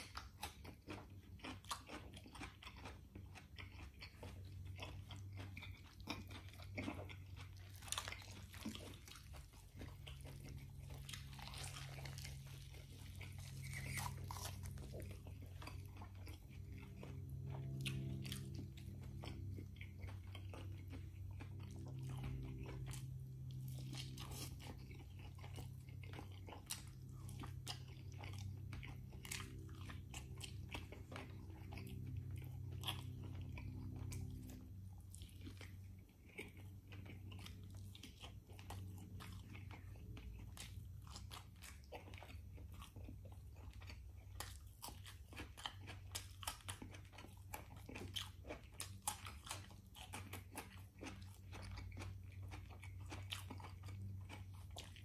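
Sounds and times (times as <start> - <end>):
man chewing food: 0.0 - 55.0
low hum: 3.9 - 44.0.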